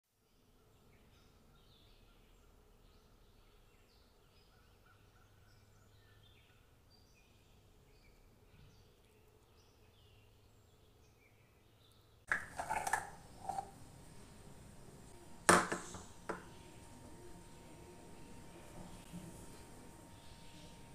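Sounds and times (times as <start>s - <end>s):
faint birds chirping: 0.1s - 20.9s
kitchen utensils handled: 12.3s - 13.8s, 15.5s - 16.5s
sharp knock: 15.5s - 16.4s.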